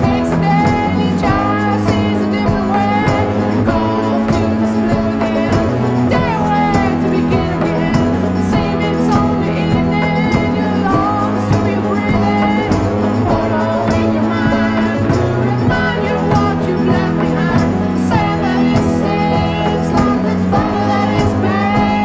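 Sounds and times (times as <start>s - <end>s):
song with sung melody: 0.0s - 22.0s.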